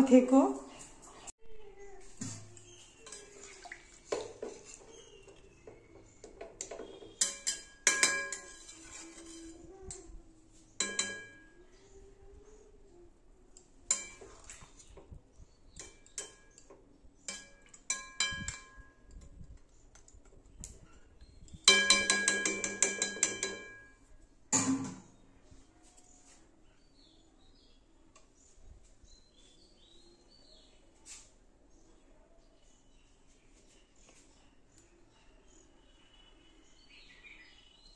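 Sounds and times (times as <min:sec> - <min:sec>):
metal spatula scraping metal pan: 0:02.3 - 0:05.3, 0:06.6 - 0:09.8.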